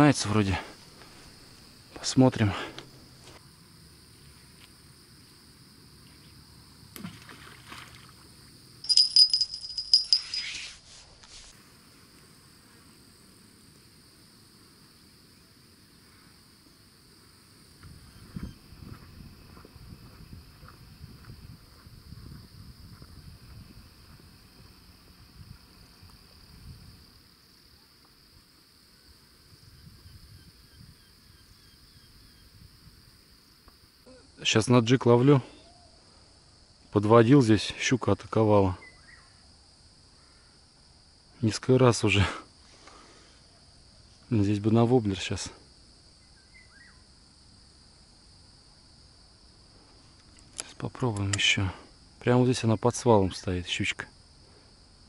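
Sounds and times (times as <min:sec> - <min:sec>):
insects chirring: 0:00.0 - 0:55.0
small bells jingling: 0:08.8 - 0:10.7.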